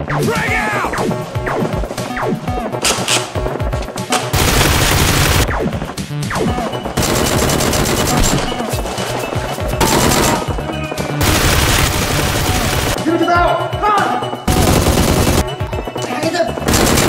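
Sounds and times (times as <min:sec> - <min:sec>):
background music: 0:00.0 - 0:17.0
automatic gunfire: 0:04.1 - 0:05.5, 0:07.0 - 0:08.6, 0:09.8 - 0:10.6, 0:11.2 - 0:13.0, 0:14.5 - 0:15.5, 0:16.7 - 0:17.0.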